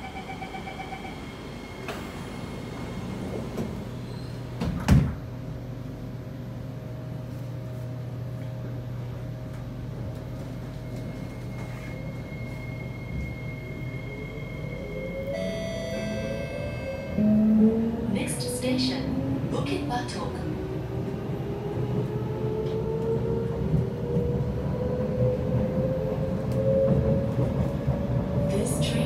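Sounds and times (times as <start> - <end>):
train rising whine: 0.0 - 4.6, 5.5 - 29.0
train low hum: 0.0 - 29.0
sliding doors closing with thud: 1.8 - 5.3.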